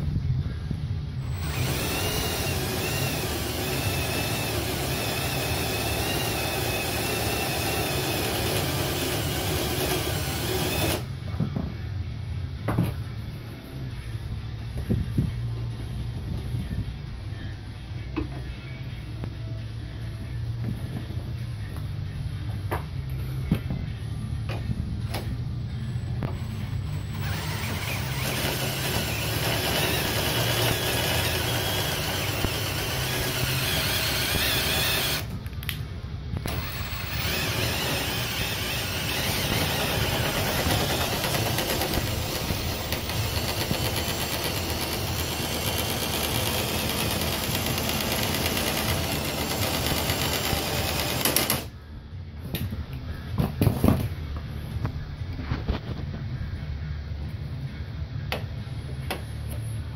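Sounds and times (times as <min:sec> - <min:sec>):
power drill spinning: 0:01.2 - 0:11.1, 0:26.3 - 0:35.3, 0:36.5 - 0:51.7.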